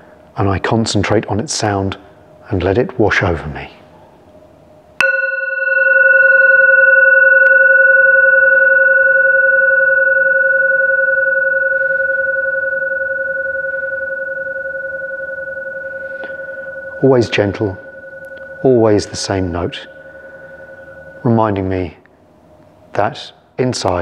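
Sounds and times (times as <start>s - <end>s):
mallet striking singing bowl: 5.0s - 21.3s
singing bowl ringing: 5.0s - 22.1s.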